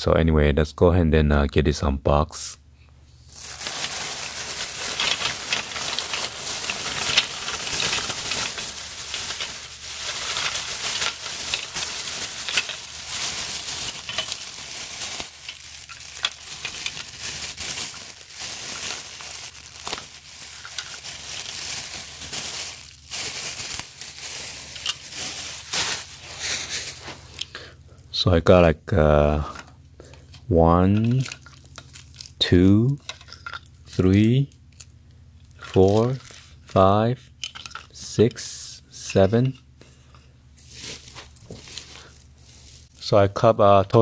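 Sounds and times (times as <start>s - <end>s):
plastic bag rustling: 3.2s - 27.5s, 31.0s - 32.4s, 35.5s - 36.7s, 40.5s - 43.0s.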